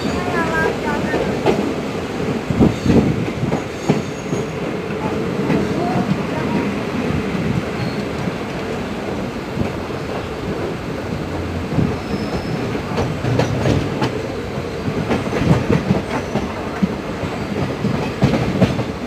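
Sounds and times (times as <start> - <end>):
train wheels rumbling on rail: 0.0 - 19.0
wheels clacking over rail joints: 7.8 - 19.0.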